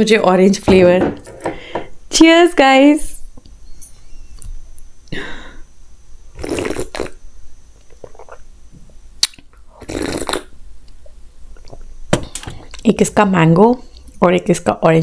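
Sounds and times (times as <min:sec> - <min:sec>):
slurping sips and swallows: 0:06.4 - 0:07.2, 0:07.9 - 0:08.5, 0:09.7 - 0:10.5.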